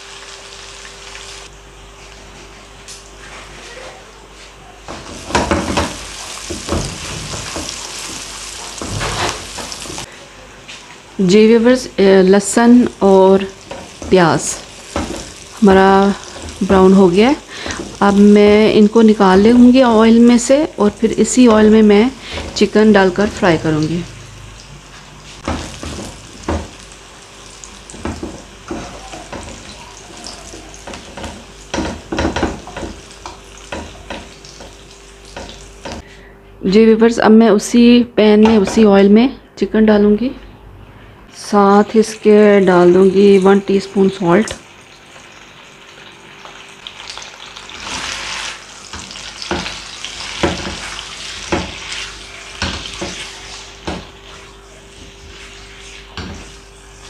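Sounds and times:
onions sizzling in hot oil: 0:00.0 - 0:01.5, 0:04.9 - 0:10.1, 0:11.2 - 0:36.0, 0:42.8 - 0:57.0
spatula knocking against pan: 0:27.9 - 0:34.8.

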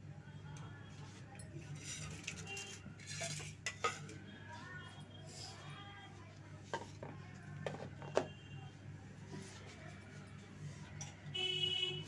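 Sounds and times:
metal utensils and dishes clinking: 0:01.3 - 0:04.2.

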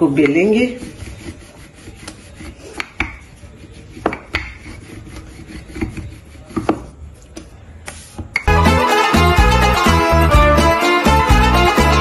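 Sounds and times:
rolling pin rolling dough: 0:00.0 - 0:08.5.

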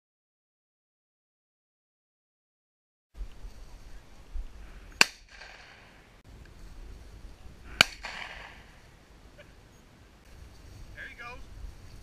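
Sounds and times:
shotgun shots with echo: 0:05.0 - 0:06.0, 0:07.8 - 0:08.7.

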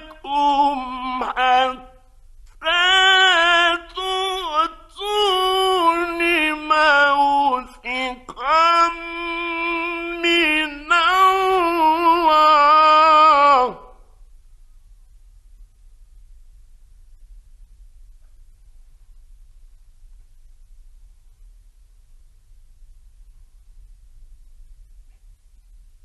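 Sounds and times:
man chanting melodically: 0:00.0 - 0:14.0
faint low hum: 0:00.0 - 0:26.0.

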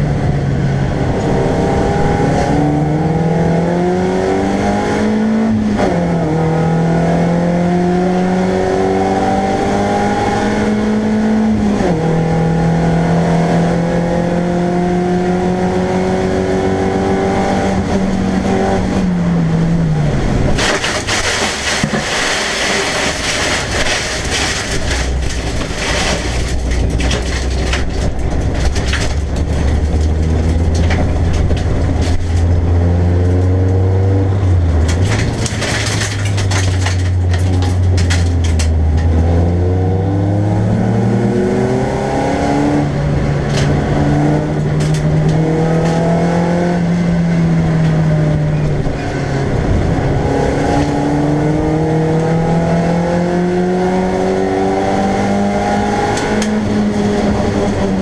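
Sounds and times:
race car engine: 0:00.0 - 0:58.0
crackling rattling road noise: 0:16.1 - 0:58.0.

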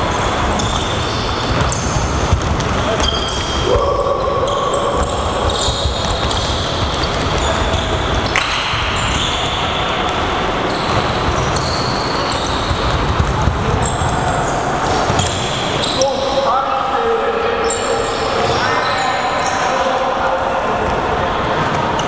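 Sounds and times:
shoes squeaking on court: 0:00.1 - 0:03.6, 0:04.5 - 0:16.4
balls bouncing on hard floor: 0:00.5 - 0:03.9, 0:04.5 - 0:16.0.

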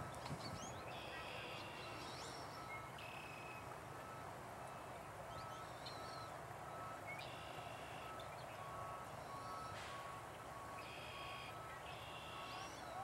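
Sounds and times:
low background noise: 0:00.0 - 0:13.0
distant reversing alarm beeping: 0:00.8 - 0:13.0
birds calling: 0:10.8 - 0:13.0.

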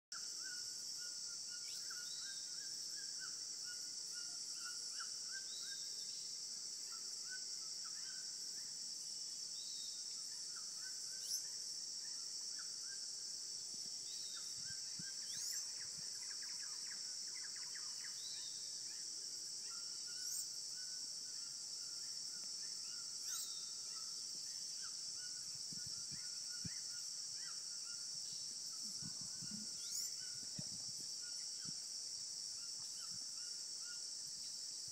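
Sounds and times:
high-pitched insect drone: 0:19.6 - 0:34.9.

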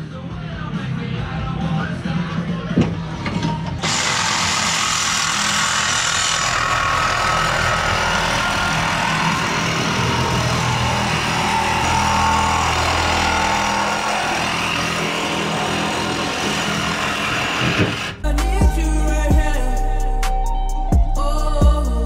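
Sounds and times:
power tool running: 0:03.8 - 0:18.2.

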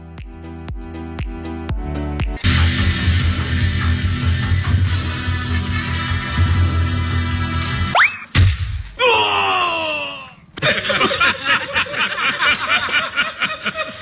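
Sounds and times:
rising whistle effect: 0:07.9 - 0:08.3
canned laugh track: 0:10.6 - 0:14.0.

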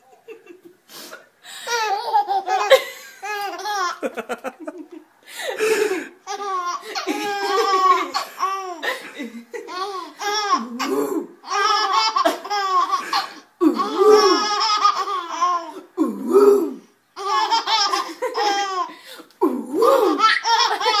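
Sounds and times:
baby girls laughing: 0:01.6 - 0:16.0, 0:17.2 - 0:18.9, 0:20.0 - 0:21.0.

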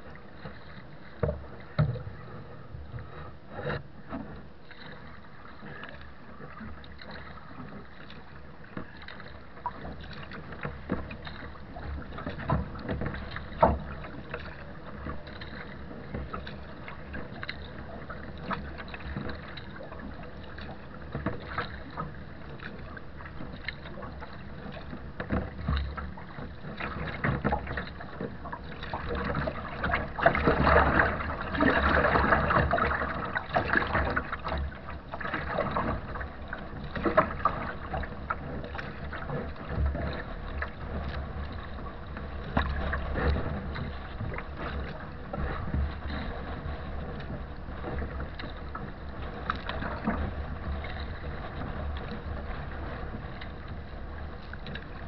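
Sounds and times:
water slapping against hull: 0:00.0 - 0:55.0.

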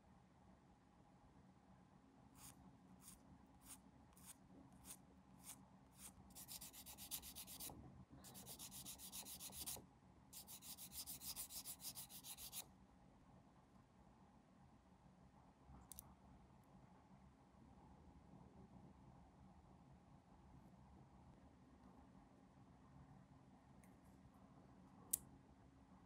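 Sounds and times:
hand sanding plastic: 0:02.4 - 0:07.7, 0:08.3 - 0:09.8, 0:10.4 - 0:12.6.

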